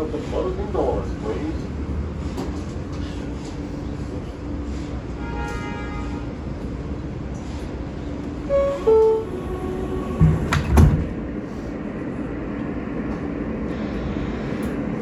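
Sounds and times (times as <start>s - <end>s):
subway car hum: 0.0s - 15.0s
subway doors thudding shut: 8.4s - 11.4s
two-note falling door chime: 8.5s - 9.3s.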